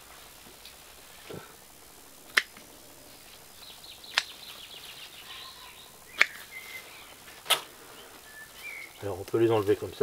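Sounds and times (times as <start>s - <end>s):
birds chirping: 2.2s - 10.0s
pruning shears snipping: 2.3s - 2.7s, 4.1s - 4.4s, 6.1s - 6.6s, 7.4s - 7.7s.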